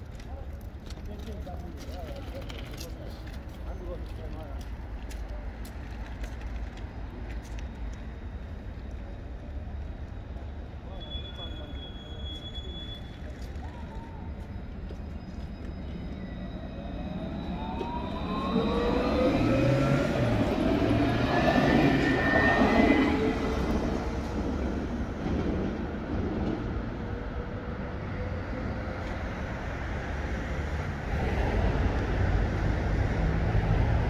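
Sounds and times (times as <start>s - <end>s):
tram motor whine: 6.8s - 34.0s.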